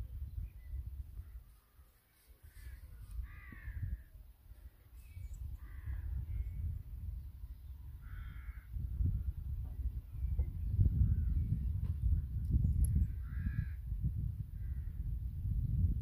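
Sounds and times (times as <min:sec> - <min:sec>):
wind rumble on microphone: 0:00.0 - 0:01.5, 0:02.4 - 0:16.0
harsh cawing bird calls: 0:01.2 - 0:04.2, 0:05.6 - 0:06.7, 0:07.9 - 0:08.8, 0:13.0 - 0:13.9.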